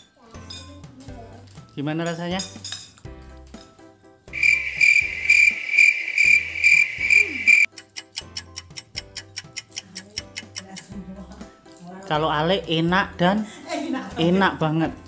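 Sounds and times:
low background music beat: 3.1 - 11.6
cricket chirping: 4.4 - 7.7.

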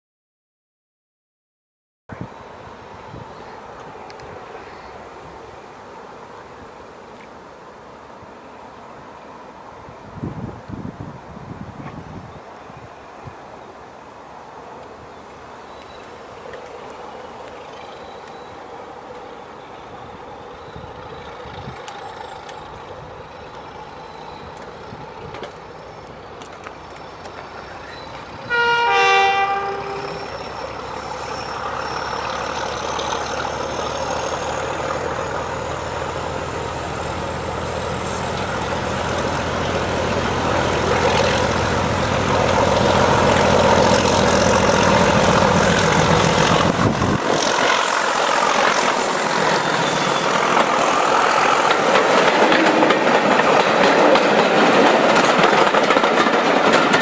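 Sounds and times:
diesel locomotive engine rumble: 14.5 - 57.0
train wheels clattering on rails: 20.6 - 28.5, 29.8 - 57.0
train horn: 28.4 - 30.6.

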